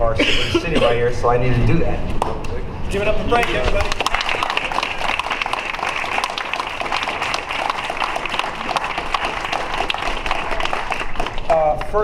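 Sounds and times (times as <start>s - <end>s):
crowd applauding: 3.3s - 12.0s.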